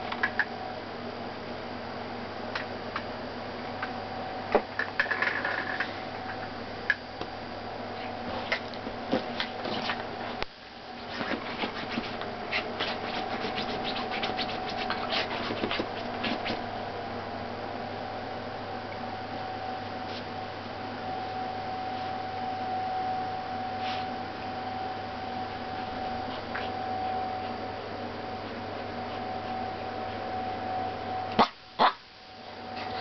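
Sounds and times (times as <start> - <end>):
dog scratching at bed sheets: 8.3 - 16.7.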